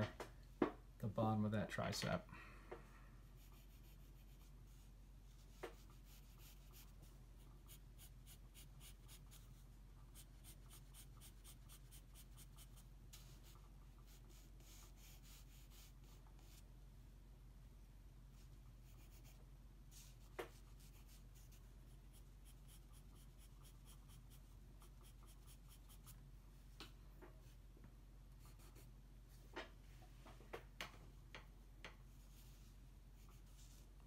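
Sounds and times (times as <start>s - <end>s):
pencil scratching on paper: 3.4s - 7.0s, 7.6s - 16.6s, 18.8s - 26.2s, 28.4s - 28.9s.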